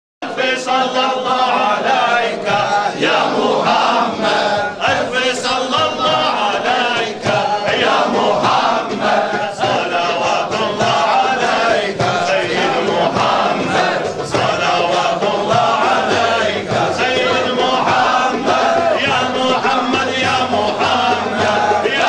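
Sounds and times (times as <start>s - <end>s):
crowd singing along: 0.2s - 22.0s
men chanting together: 0.2s - 22.0s.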